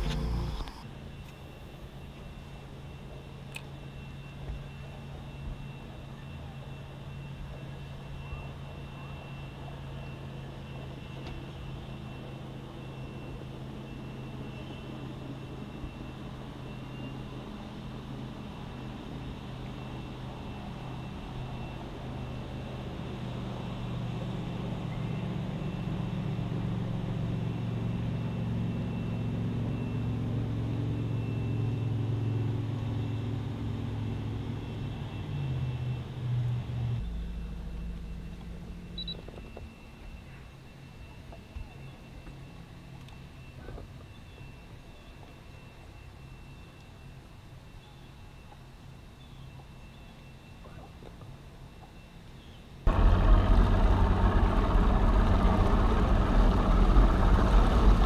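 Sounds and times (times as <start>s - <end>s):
low motor drone: 0.0s - 1.0s, 17.3s - 39.4s, 52.9s - 58.0s
faint thin whine: 0.0s - 33.2s.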